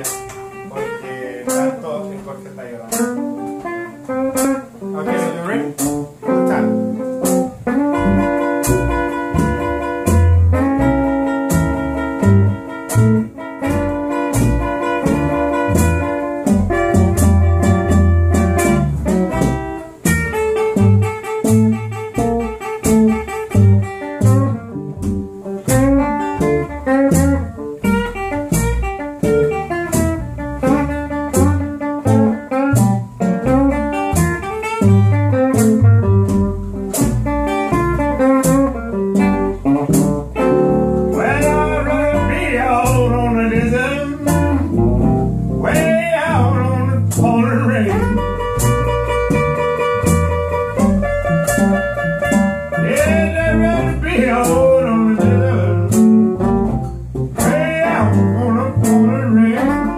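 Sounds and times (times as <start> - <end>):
steady beat of sharp clicks: 0.0 - 0.7, 2.9 - 46.0
guitar: 0.0 - 59.9
plucked double bass: 0.0 - 59.9.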